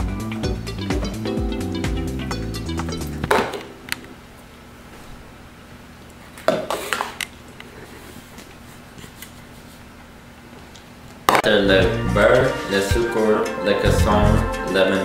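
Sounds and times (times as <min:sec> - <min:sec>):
plastic bowls clattering on glass: 0:06.4 - 0:07.2.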